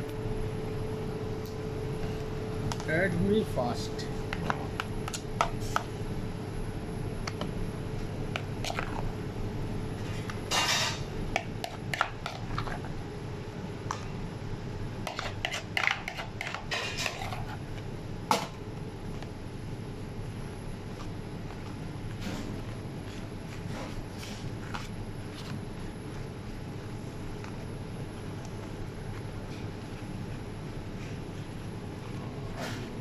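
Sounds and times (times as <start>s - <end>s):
low background hum: 0.0s - 33.0s
metal spoon scraping bowl: 15.1s - 17.6s.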